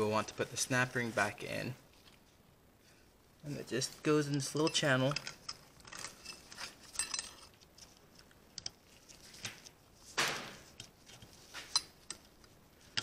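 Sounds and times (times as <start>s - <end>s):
metallic clicks and scrapes: 3.8s - 13.0s.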